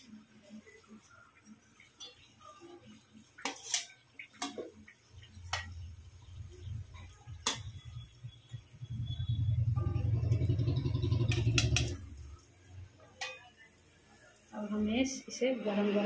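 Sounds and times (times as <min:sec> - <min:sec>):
low hum: 0:05.2 - 0:12.9
metal spatula clinking on wok: 0:13.2 - 0:13.5.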